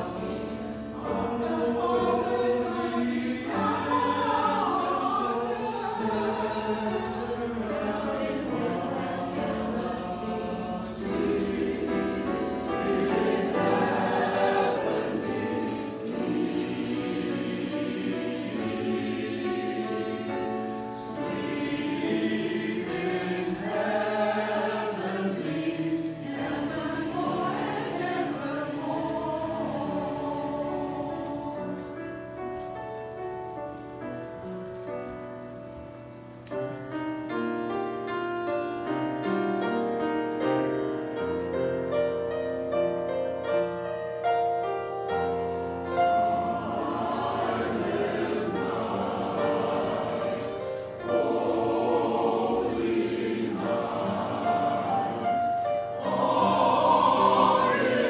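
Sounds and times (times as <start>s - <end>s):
church choir singing a hymn: 0.0s - 36.0s, 36.6s - 58.0s.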